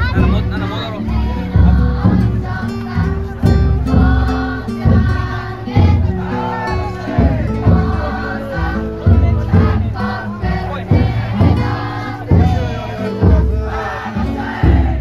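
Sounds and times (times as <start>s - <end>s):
crowd chanting in unison: 0.0s - 15.0s
drum beaten at steady pace: 0.0s - 15.0s.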